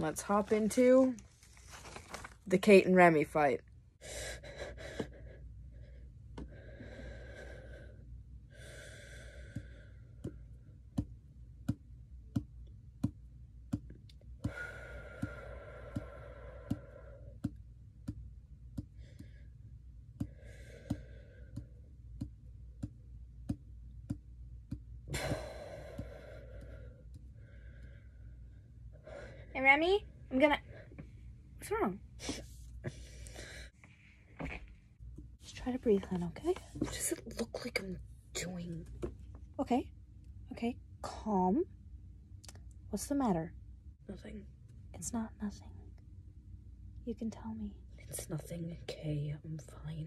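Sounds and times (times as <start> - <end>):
person breathing heavily: 4.0 - 10.7, 14.4 - 17.4, 20.2 - 21.9, 25.1 - 29.6, 32.2 - 33.8.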